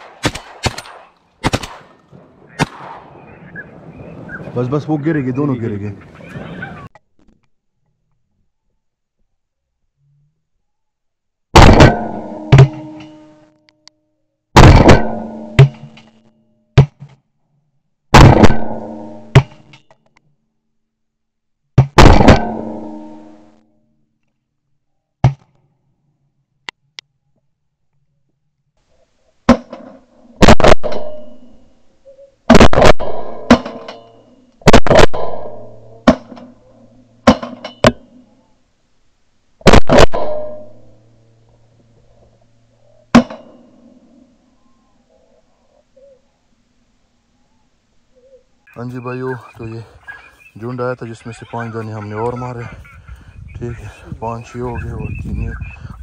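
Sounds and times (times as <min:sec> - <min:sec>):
shotgun blasts: 0:00.0 - 0:03.3, 0:11.6 - 0:13.0, 0:14.6 - 0:16.0, 0:18.1 - 0:19.7, 0:21.8 - 0:23.1, 0:30.4 - 0:31.4, 0:32.5 - 0:36.6, 0:39.6 - 0:40.8.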